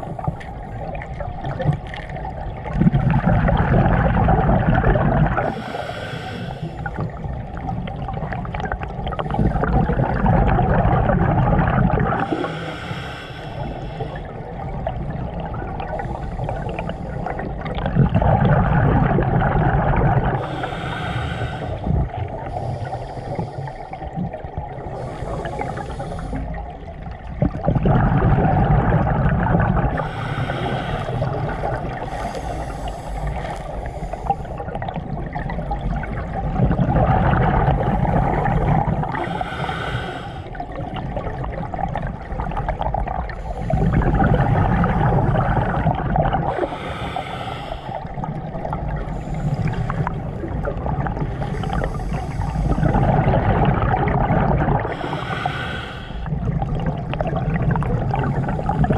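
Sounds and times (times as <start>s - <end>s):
exhaust bubbles gurgling: 0.0s - 58.9s
scuba regulator inhale hiss: 5.4s - 7.2s, 12.2s - 14.3s, 20.4s - 24.1s, 24.9s - 26.6s, 29.9s - 34.7s, 39.2s - 40.6s, 46.5s - 48.2s, 51.3s - 52.9s, 54.9s - 56.3s.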